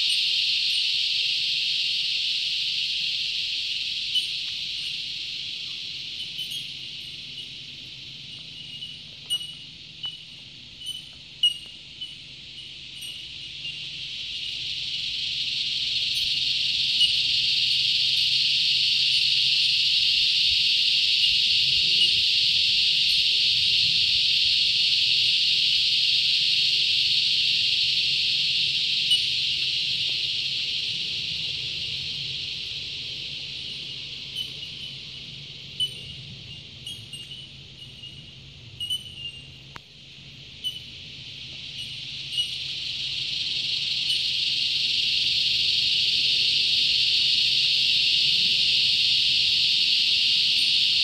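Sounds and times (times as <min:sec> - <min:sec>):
cicada chorus buzzing: 0:00.0 - 0:51.0.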